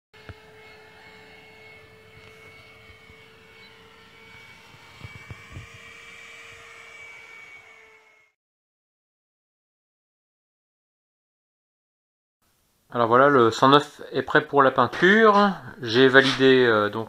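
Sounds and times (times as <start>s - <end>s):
model aircraft motor whine: 0.2s - 8.4s.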